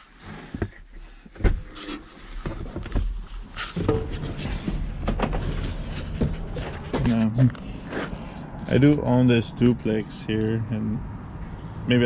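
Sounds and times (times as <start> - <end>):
low rumble: 3.8 - 9.3.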